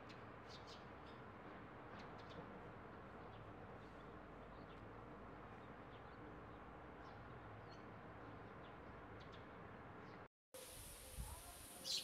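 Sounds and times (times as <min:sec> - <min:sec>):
low steady hiss: 0:10.6 - 0:12.0
faint sparrow chirps: 0:11.8 - 0:12.0.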